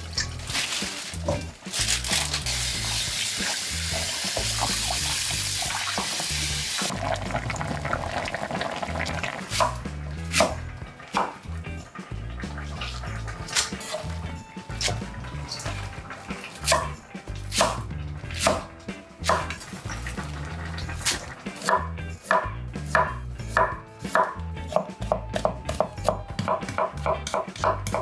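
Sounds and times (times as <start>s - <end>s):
knife chopping on cutting board: 9.6s - 11.4s, 16.6s - 19.6s, 21.0s - 28.0s.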